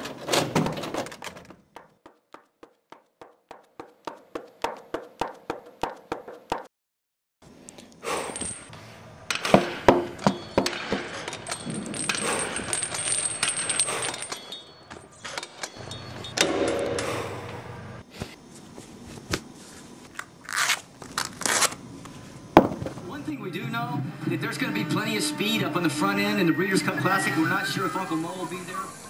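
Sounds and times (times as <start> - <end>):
footsteps running on gym floor: 1.4 - 6.7
clatter of knocks: 9.3 - 13.5
high hiss: 27.2 - 29.0.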